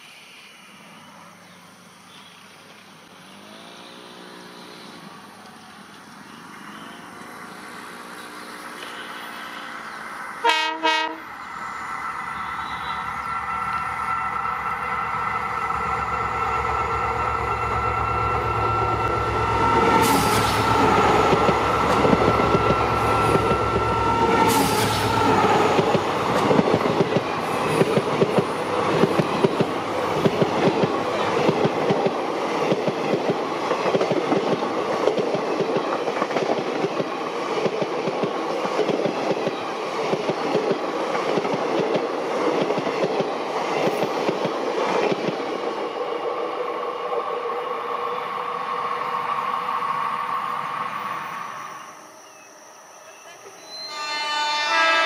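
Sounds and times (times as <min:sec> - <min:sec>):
locomotive engine drone: 0:02.6 - 0:33.6
wheels clattering on rails: 0:18.4 - 0:45.6.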